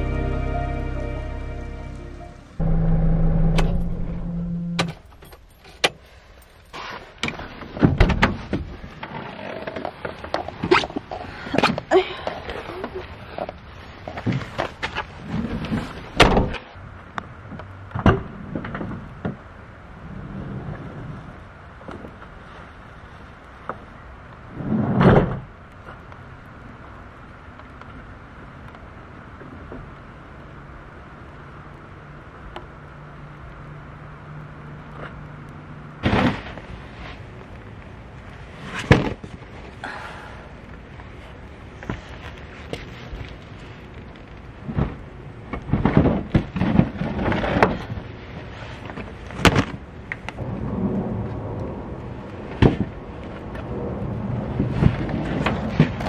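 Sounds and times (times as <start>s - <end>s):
steady rain hiss: 0.0s - 2.6s.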